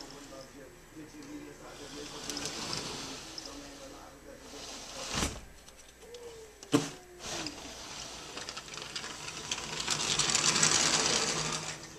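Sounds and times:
sliding glass door rattling: 2.0 - 3.2, 7.2 - 11.9.

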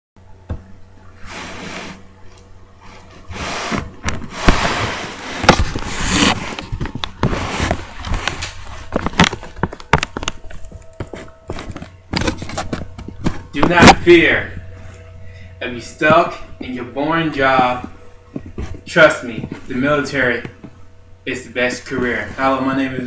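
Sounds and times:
microphone handling rustling: 2.8 - 15.2, 16.0 - 20.9.

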